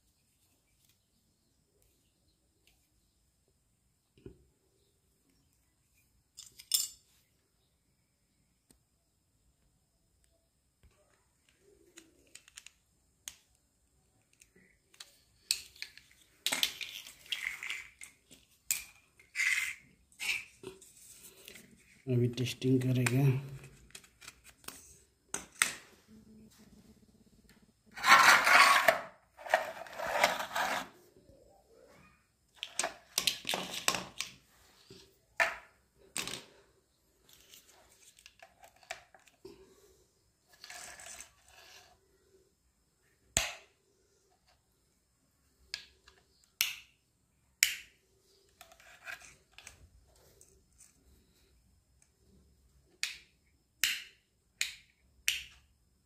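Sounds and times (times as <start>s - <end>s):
rustling and scraping: 15.1s - 22.0s, 27.9s - 32.0s, 37.2s - 39.4s, 40.4s - 42.0s.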